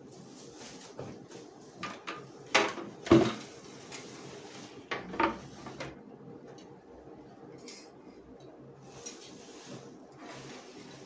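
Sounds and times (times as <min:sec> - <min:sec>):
plastic wrap rustling: 0:00.0 - 0:01.8.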